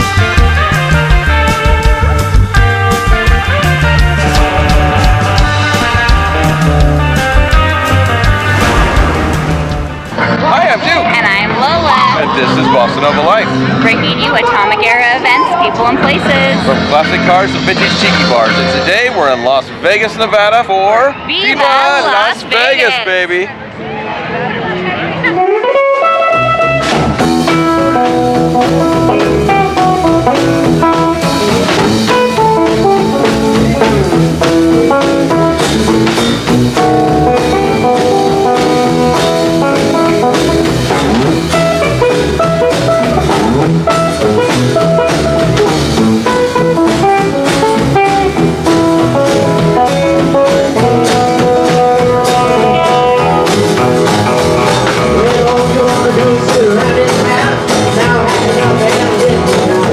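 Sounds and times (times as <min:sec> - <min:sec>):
drum kit beat: 0:00.0 - 0:12.7, 0:26.0 - 0:59.9
guitar: 0:00.0 - 0:59.9.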